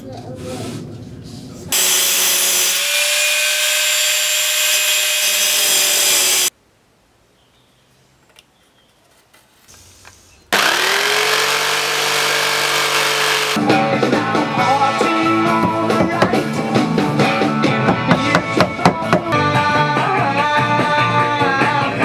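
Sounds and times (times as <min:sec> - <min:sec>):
angle grinder grinding: 0:01.7 - 0:06.5, 0:10.5 - 0:13.6
jigsaw motor whine: 0:01.8 - 0:06.5, 0:10.6 - 0:13.6.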